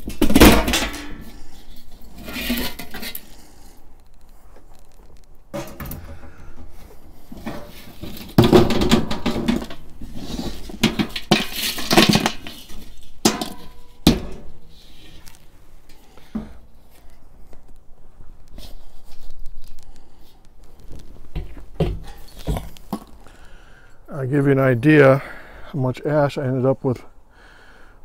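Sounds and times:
metal ash pan clanking and scraping: 0.0 - 3.4, 5.5 - 16.6, 21.3 - 23.2.

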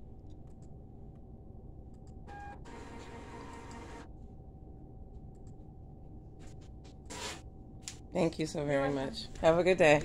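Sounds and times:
faint room hum: 0.0 - 10.0
receipt printer printing: 2.3 - 4.1
receipt printer tone: 2.3 - 4.1.

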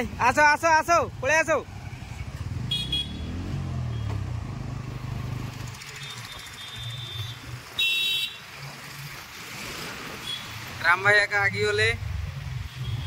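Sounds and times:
car horn beep: 2.7 - 3.3, 6.0 - 8.4.

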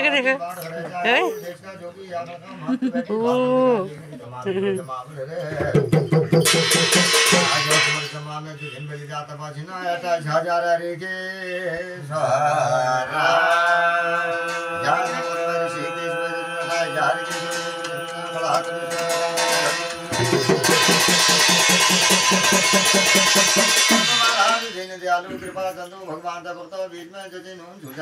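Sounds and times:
hand drum beat: 5.6 - 8.1, 19.0 - 24.8
person chanting: 12.1 - 21.8.

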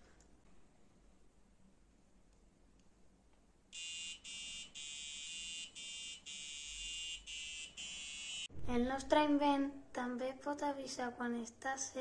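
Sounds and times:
pulsing buzzer alarm: 3.8 - 8.5.

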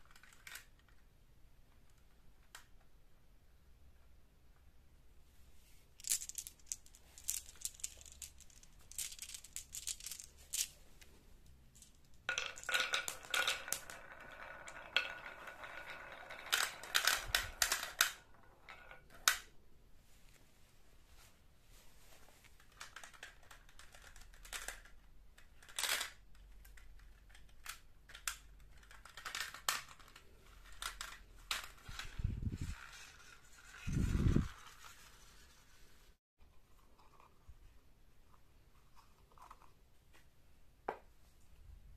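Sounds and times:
marbles rattling down wooden track: 6.0 - 10.8, 11.8 - 19.4.

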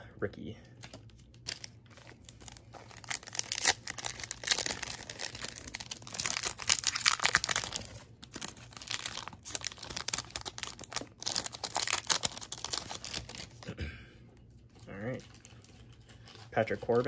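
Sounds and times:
card pack wrapper crinkling and tearing: 0.8 - 13.7.

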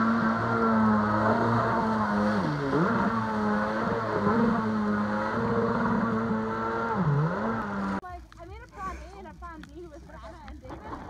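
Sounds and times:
jet ski engine running: 0.0 - 8.1.

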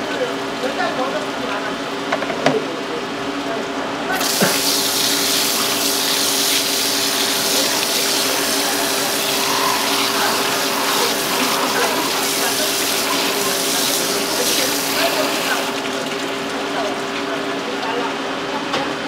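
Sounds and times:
water spraying from nozzle: 4.2 - 17.0.

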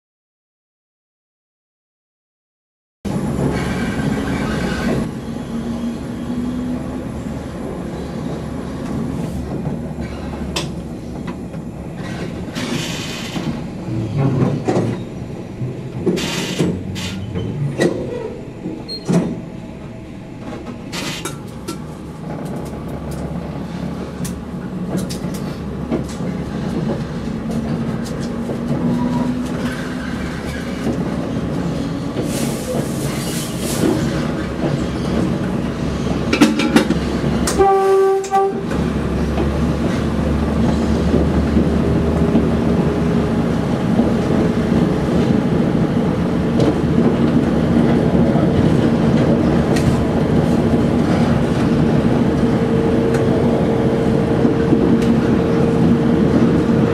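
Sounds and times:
diesel engine drone: 38.7 - 56.9.

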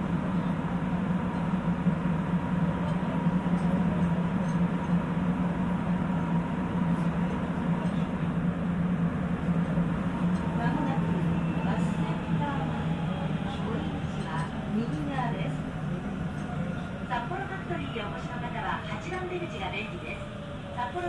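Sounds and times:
subway train running in tunnel: 0.0 - 21.0.

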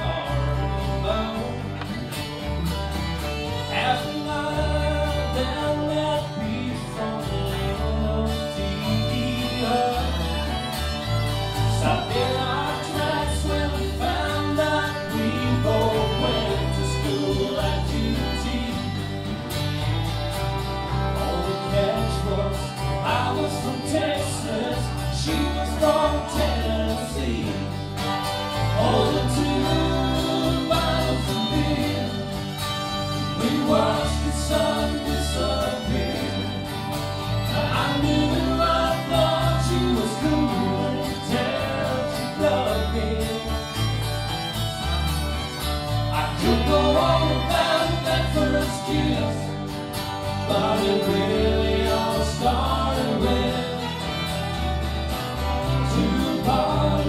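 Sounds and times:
bass line: 0.0 - 57.0
guitars playing: 0.0 - 57.0
person singing: 11.6 - 19.3, 21.2 - 27.8, 28.6 - 36.8, 37.4 - 44.0, 46.1 - 49.6, 55.7 - 57.0.

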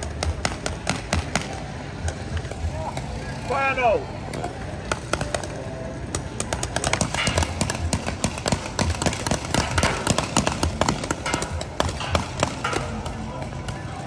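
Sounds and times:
game marker guns firing: 6.2 - 13.2.

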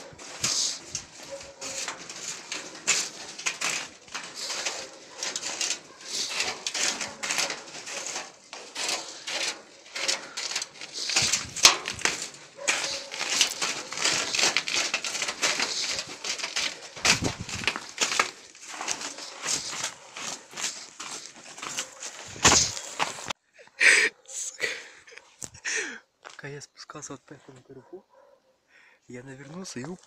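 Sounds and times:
clothing rustle: 0.0 - 23.4
footsteps crunching on snowy metal stairs: 0.0 - 23.4.

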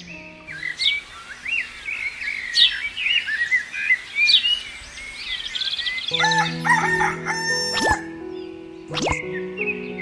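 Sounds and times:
background music sustained notes: 0.0 - 2.4, 6.0 - 10.0
birds chirping: 0.0 - 10.0
rooster crowing: 6.1 - 8.0.

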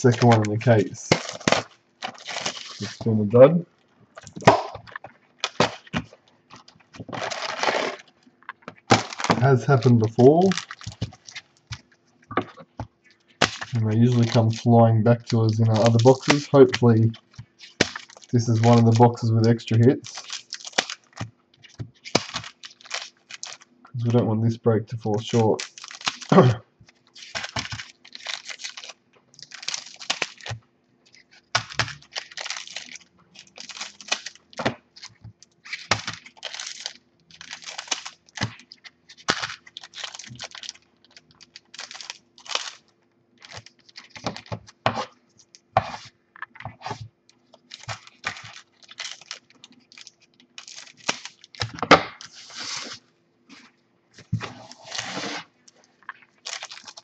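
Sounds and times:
scissors cutting foil packs: 0.0 - 3.0, 7.1 - 8.0, 13.4 - 21.2, 22.0 - 23.6, 27.2 - 40.8, 41.4 - 42.8, 47.7 - 51.7, 56.5 - 57.0
foil wrappers crinkling: 0.0 - 3.5, 4.1 - 24.2, 25.0 - 57.0
faint steady hum: 0.0 - 57.0.

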